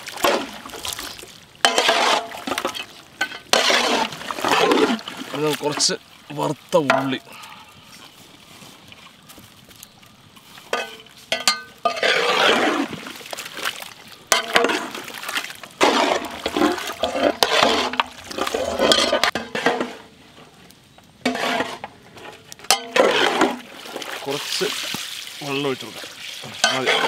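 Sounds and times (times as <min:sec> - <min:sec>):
thick stew stirred in metal pot: 0:00.0 - 0:06.0, 0:10.7 - 0:20.1, 0:21.3 - 0:24.6, 0:25.9 - 0:27.0
paddle knocking pot: 0:06.8 - 0:07.3.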